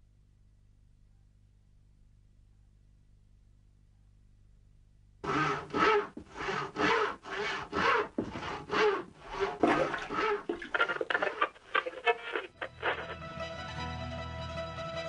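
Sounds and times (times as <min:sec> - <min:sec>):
rhythmic rasping strokes: 0:05.2 - 0:13.4.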